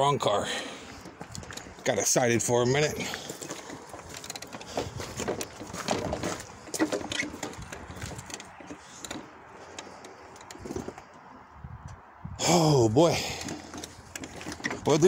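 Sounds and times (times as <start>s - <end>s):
footsteps on gravel: 0.5s - 9.0s
parts clicking and knocking: 0.9s - 2.3s, 3.1s - 11.3s, 13.3s - 15.0s.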